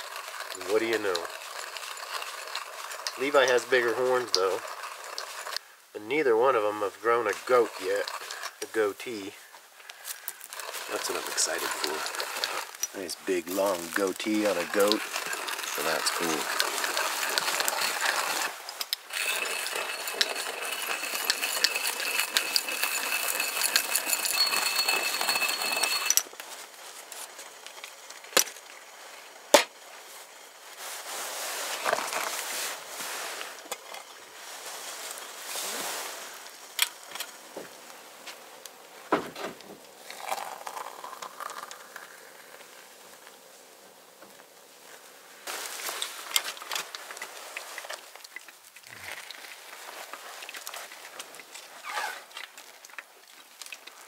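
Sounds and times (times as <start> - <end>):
water pouring into coffee press: 0.0 - 5.6, 7.2 - 9.3, 10.2 - 26.2, 40.0 - 42.8
outdoor background noise: 0.0 - 54.0
metal cookware clinking: 19.1 - 26.2.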